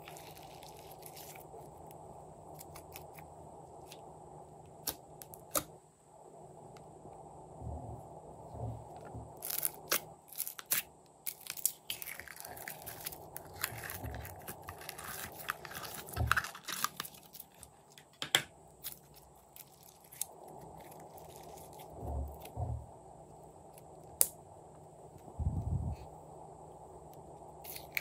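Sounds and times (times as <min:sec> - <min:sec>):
soft low thumps: 0:07.5 - 0:09.4, 0:25.4 - 0:26.0.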